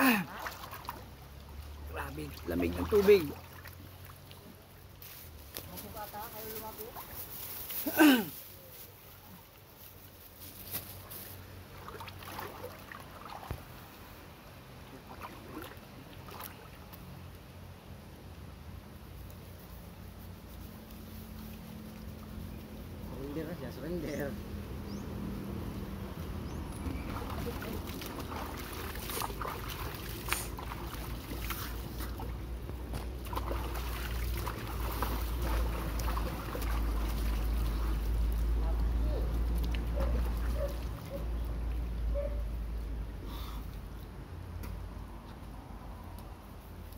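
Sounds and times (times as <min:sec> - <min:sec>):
sharp splashes: 0:00.0 - 0:04.6, 0:11.6 - 0:13.9, 0:14.8 - 0:17.1, 0:26.8 - 0:41.8
water splashing and dripping: 0:00.0 - 0:08.2, 0:10.8 - 0:17.5, 0:26.0 - 0:43.0.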